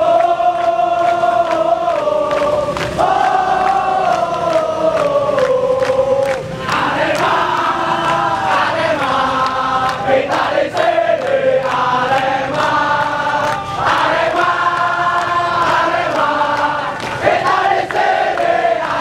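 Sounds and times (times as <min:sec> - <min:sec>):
crowd singing a chant: 0:00.0 - 0:19.0.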